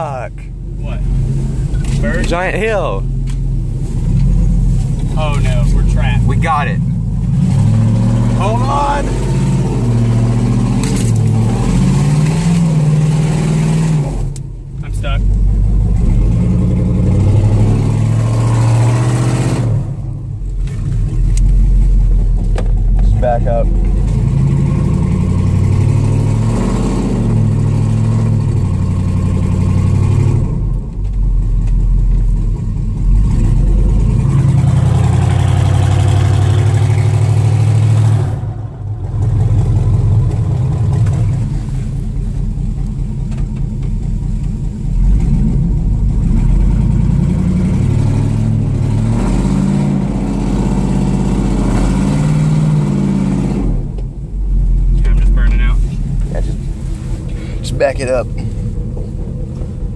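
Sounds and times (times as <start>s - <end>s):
truck engine revving: 0.9s - 30.8s, 32.5s - 43.4s, 44.1s - 59.9s.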